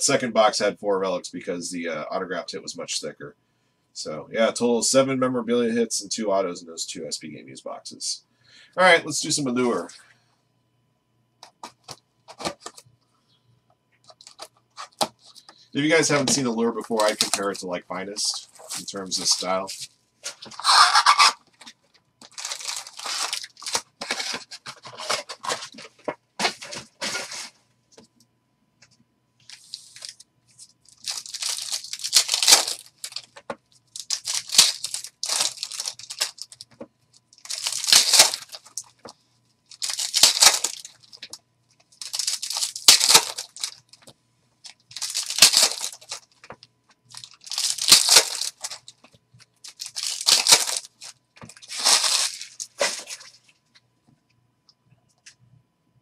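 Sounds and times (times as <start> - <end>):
foil wrappers tearing and crinkling: 16.2 - 17.6, 18.2 - 25.9, 30.9 - 36.7, 37.4 - 39.0, 39.7 - 41.4, 42.0 - 44.0, 44.7 - 46.5, 47.1 - 49.0, 49.6 - 53.4.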